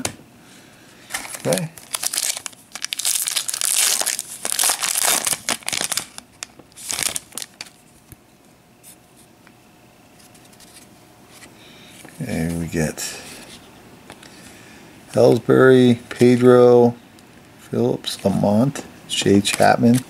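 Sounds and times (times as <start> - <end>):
foil wrapper crinkling and tearing: 1.1 - 7.8.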